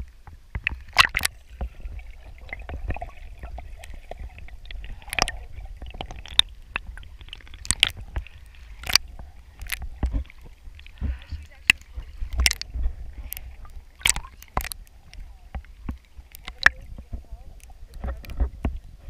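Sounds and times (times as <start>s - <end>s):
steady low rumble: 0.0s - 19.0s
water sloshing and splashing: 0.0s - 19.0s
sharp knocks and clicks: 11.7s - 12.7s.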